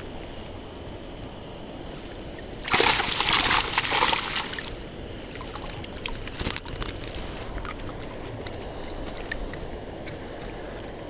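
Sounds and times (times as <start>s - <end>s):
water streaming off a net: 2.6s - 7.5s
water dripping and trickling: 2.7s - 10.2s
small ticks: 5.4s - 11.0s.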